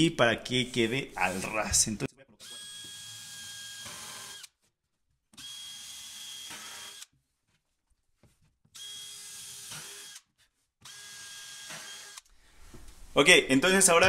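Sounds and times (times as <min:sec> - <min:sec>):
power drill spinning: 0:02.4 - 0:04.6, 0:05.4 - 0:07.2, 0:08.7 - 0:12.3.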